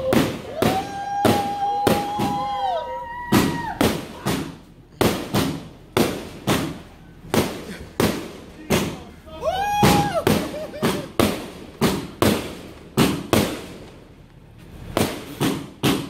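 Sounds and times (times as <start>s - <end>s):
fireworks bangs: 0.0s - 16.0s.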